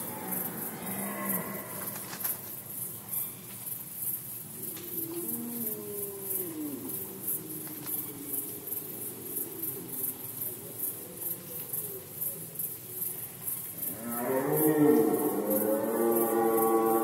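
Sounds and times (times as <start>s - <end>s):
deer stags roaring: 4.6s - 10.3s.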